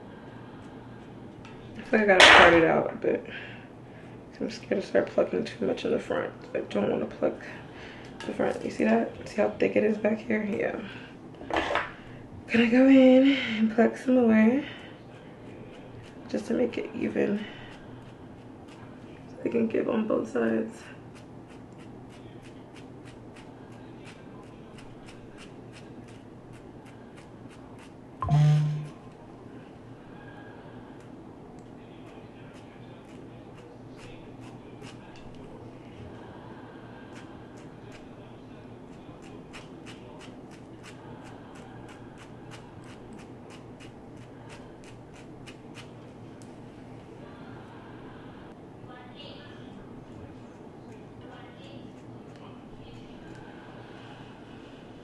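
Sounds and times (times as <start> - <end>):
short low hum: 28.2 - 29.2.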